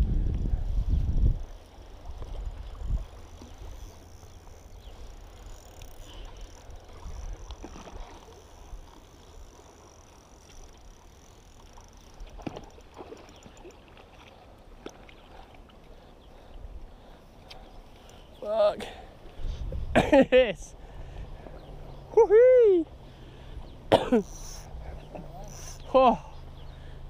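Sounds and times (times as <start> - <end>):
wind rumbling on microphone: 0.0 - 5.5, 19.3 - 20.1.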